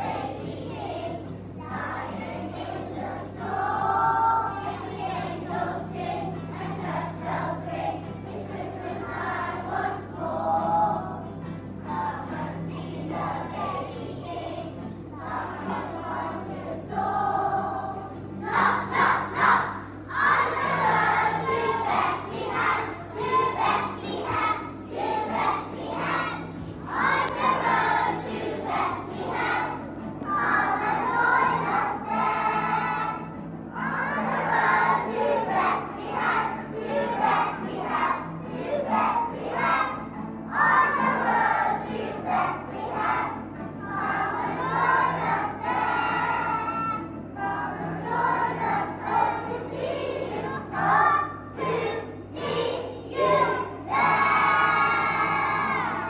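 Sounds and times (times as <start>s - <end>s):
children singing together: 0.0s - 56.0s.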